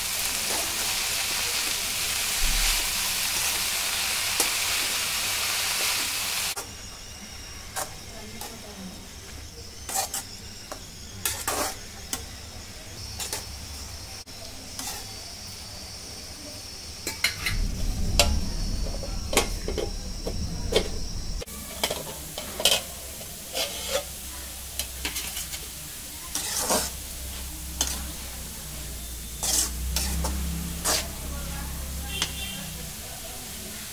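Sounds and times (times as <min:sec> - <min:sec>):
greens sizzling in a pan: 0:00.0 - 0:33.9.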